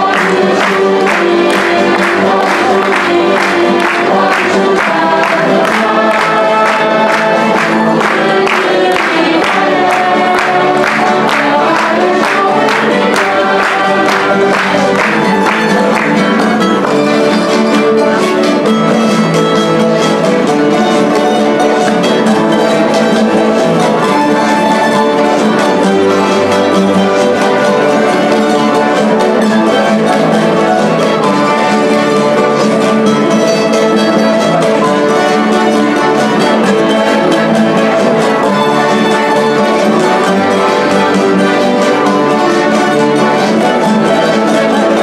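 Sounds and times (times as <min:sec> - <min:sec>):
voices singing: 0:00.0 - 0:18.4
folk ensemble playing: 0:00.0 - 0:45.0.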